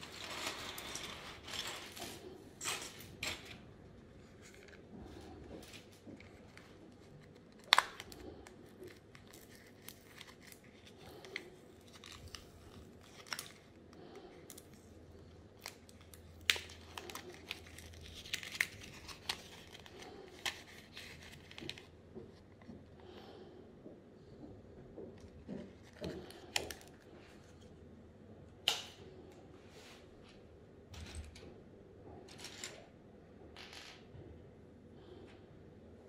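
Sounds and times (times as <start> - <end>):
paper tearing and crinkling: 15.6 - 21.8.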